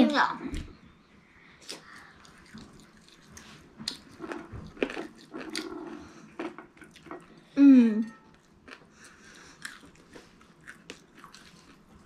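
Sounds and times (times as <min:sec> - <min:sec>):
chewing and mouth smacks: 0:01.6 - 0:07.3, 0:08.4 - 0:12.0.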